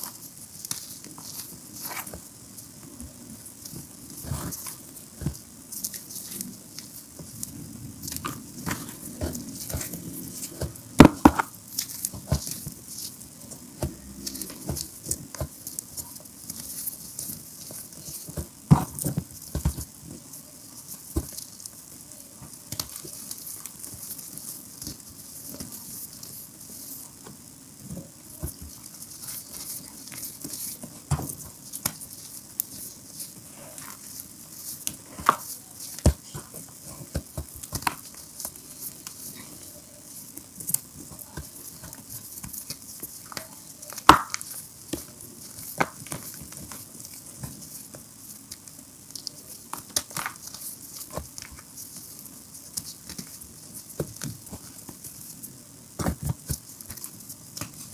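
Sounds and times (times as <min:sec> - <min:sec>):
hands crumbling chalk: 0:28.4 - 0:57.9.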